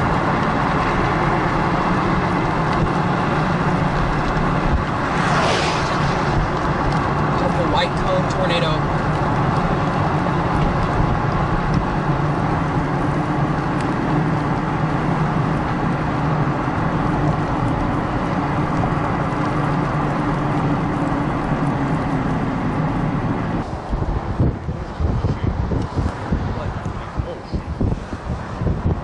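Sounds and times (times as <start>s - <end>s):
car engine hum: 0.0s - 29.0s
tyre and road noise: 0.0s - 29.0s.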